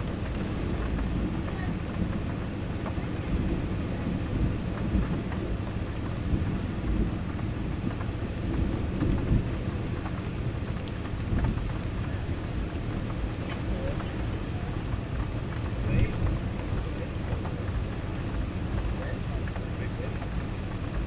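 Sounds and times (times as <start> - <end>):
distant thunder rumbling: 0.0 - 21.0.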